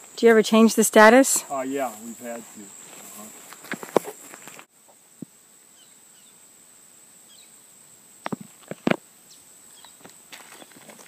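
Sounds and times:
insects droning: 0.0 - 11.0
short scuffs and clicks: 2.9 - 4.7
soft bird chirps: 7.2 - 7.6, 9.2 - 11.0.

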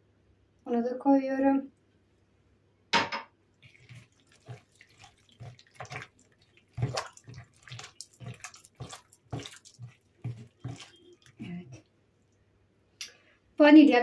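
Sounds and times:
hand squelching batter in bowl: 3.6 - 12.0.

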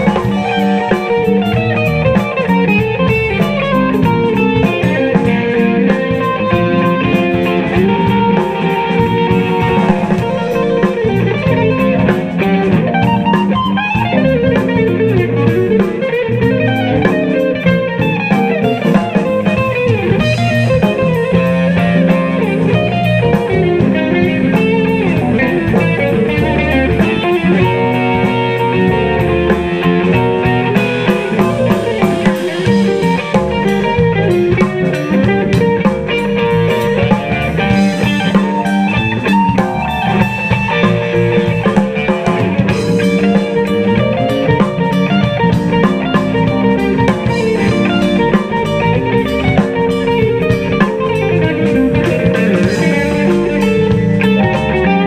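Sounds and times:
bass guitar: 0.0 - 55.0
drum kit with fast cymbals: 0.0 - 55.0
electric guitar: 0.0 - 55.0
keyboard: 0.0 - 55.0.

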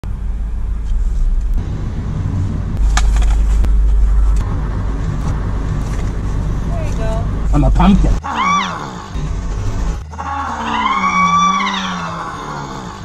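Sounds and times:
car engine and road rumble: 0.0 - 13.0
rustles and clicks: 2.8 - 7.4.

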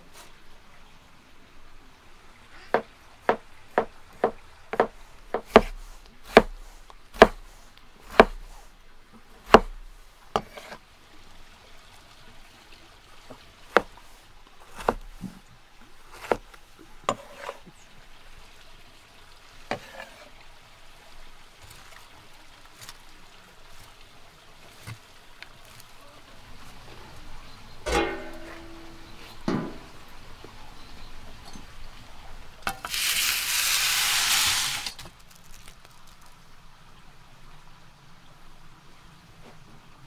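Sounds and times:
knife chopping on wooden board: 2.8 - 6.6, 7.2 - 7.5, 8.1 - 8.5, 9.5 - 9.8, 10.4 - 10.8, 13.7 - 13.9, 14.7 - 15.4, 16.1 - 16.4.

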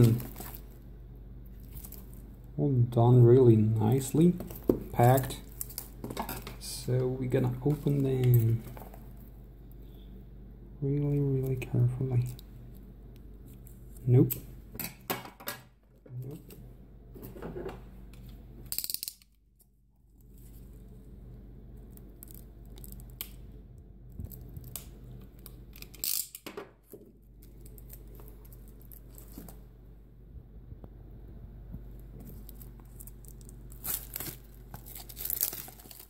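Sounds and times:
plastic wrap crinkling: 0.0 - 0.9, 1.5 - 2.5, 3.8 - 9.3, 21.8 - 23.4, 24.2 - 29.7, 32.1 - 36.0
steady low hum: 0.0 - 36.0.

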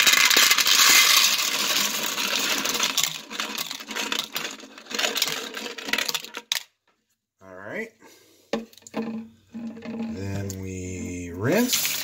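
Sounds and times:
bullets clattering into plastic colander: 0.0 - 6.6, 11.7 - 12.0.

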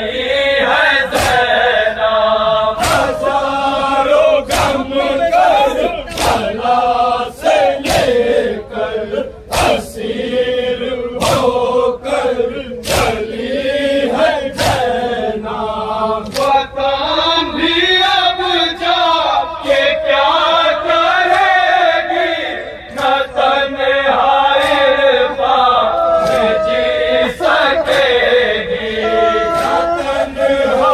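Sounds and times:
group of voices chanting: 0.0 - 30.9
sharp beats: 2.8 - 3.4.

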